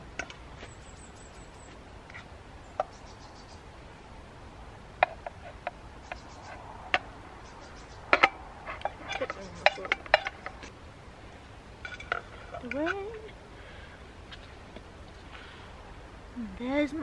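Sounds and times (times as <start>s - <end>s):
steady low hiss: 0.0s - 17.0s
tongs tapping a saucepan: 8.1s - 10.6s.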